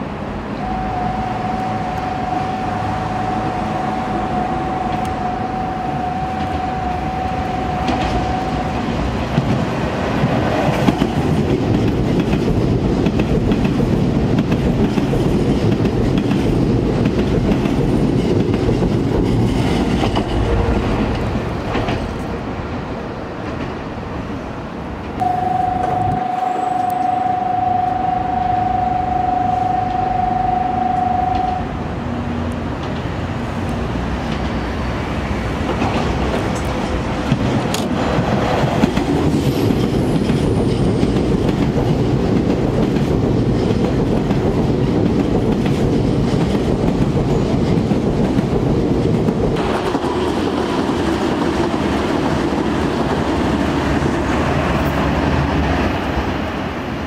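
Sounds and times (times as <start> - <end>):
train wheels rushing on rails: 0.0 - 57.0
steady high tone: 0.5 - 9.5, 25.2 - 32.0
clickety-clack over rail joints: 7.8 - 24.2, 32.3 - 56.9.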